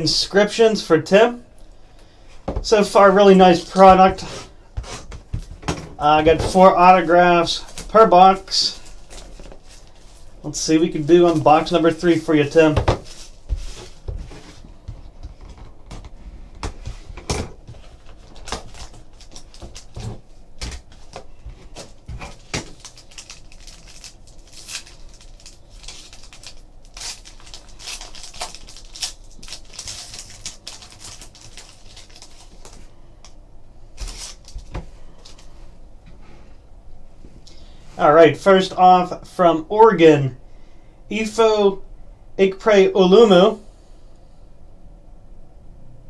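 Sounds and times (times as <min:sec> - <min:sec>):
foil pack tearing and crinkling: 0:17.7 - 0:32.9, 0:34.0 - 0:35.4.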